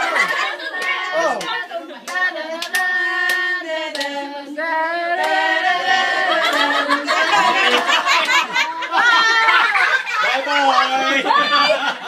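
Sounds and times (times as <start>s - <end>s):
group of people singing: 0.0s - 10.3s
hand claps: 0.2s - 4.2s.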